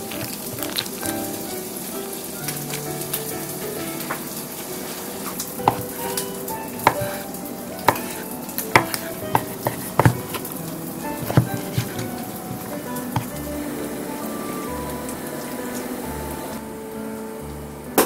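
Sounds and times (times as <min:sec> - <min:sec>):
steady hiss: 0:00.0 - 0:18.0
knife knocking on wooden board: 0:05.6 - 0:06.0, 0:06.8 - 0:07.2, 0:07.9 - 0:08.2, 0:08.8 - 0:10.5, 0:11.2 - 0:13.4.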